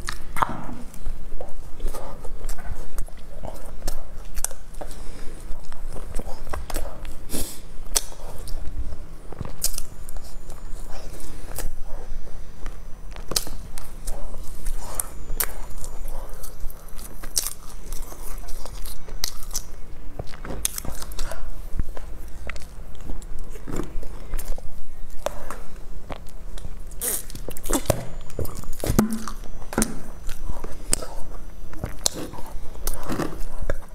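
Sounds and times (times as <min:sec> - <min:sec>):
person chewing crisp bread: 0:00.0 - 0:33.9.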